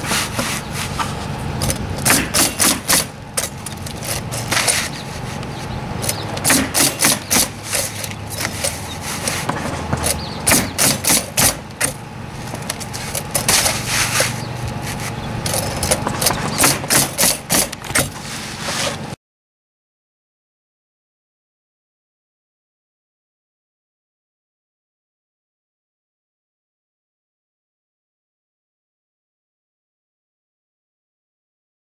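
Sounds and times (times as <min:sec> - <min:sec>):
steady low hum: 0:00.0 - 0:19.2
nail gun shots: 0:02.0 - 0:03.1, 0:06.4 - 0:07.6, 0:10.4 - 0:12.0, 0:16.5 - 0:18.1.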